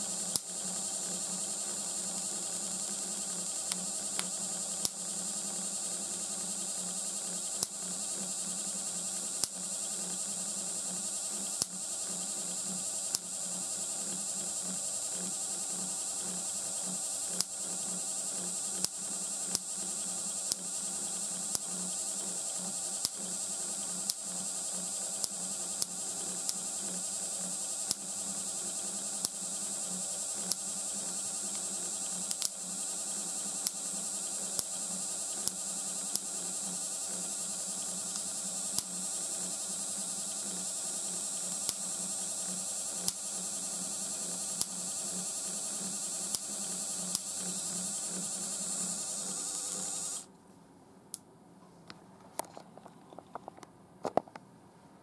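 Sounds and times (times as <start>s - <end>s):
electric motor buzz: 0.0s - 50.3s
sparks snapping: 1.6s - 5.2s, 7.5s - 7.9s, 11.4s - 11.8s, 17.2s - 22.2s, 23.0s - 23.4s, 24.0s - 29.7s, 30.3s - 32.7s, 33.3s - 50.3s.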